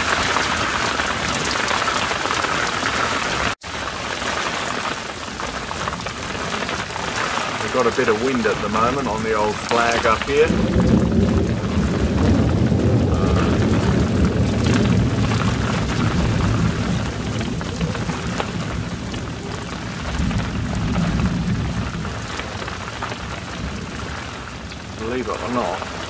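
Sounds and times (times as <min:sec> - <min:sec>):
rain hiss: 0:00.0 - 0:26.0
wind buffeting microphone: 0:05.3 - 0:26.0.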